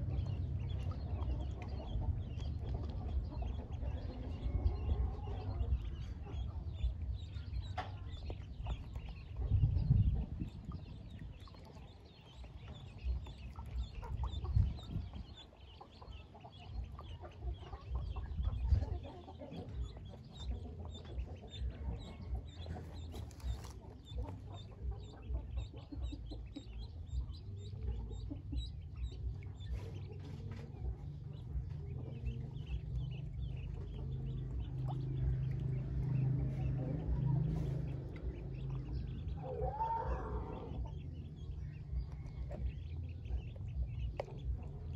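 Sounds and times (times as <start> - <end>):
ducklings peeping: 0.0 - 44.9.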